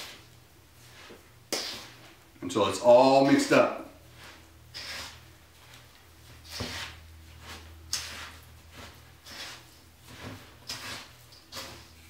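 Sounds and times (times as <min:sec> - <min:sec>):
spoon scraping sugar in bowl: 0:00.0 - 0:02.1, 0:04.0 - 0:12.0.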